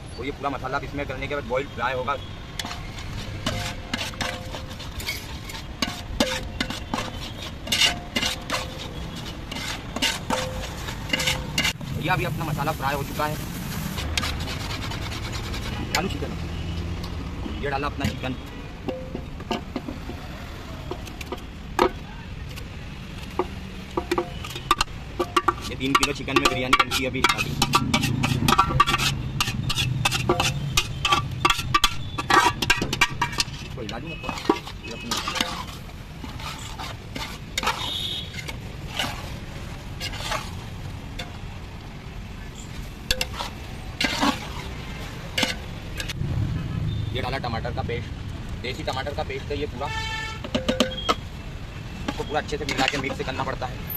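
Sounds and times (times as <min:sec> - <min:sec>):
metal spoon scraping metal bowl: 0:02.6 - 0:11.8, 0:13.9 - 0:16.4, 0:23.4 - 0:39.4, 0:40.0 - 0:40.6, 0:43.1 - 0:46.2, 0:52.0 - 0:53.4.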